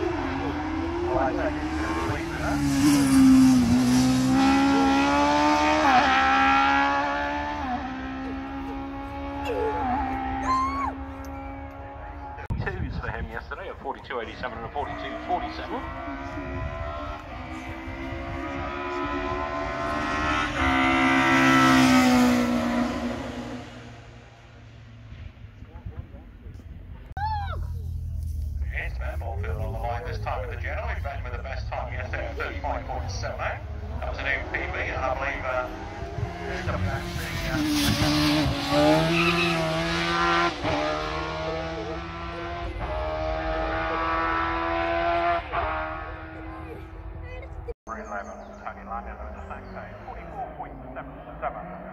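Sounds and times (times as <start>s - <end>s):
racing car engine passing: 0.0s - 12.5s, 13.8s - 25.6s, 28.7s - 47.7s.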